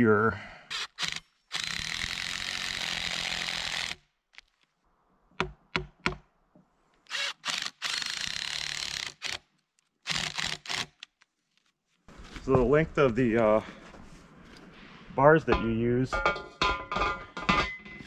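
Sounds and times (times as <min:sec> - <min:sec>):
impact driver driving screws: 0:00.7 - 0:04.5, 0:07.1 - 0:09.4, 0:10.0 - 0:11.1.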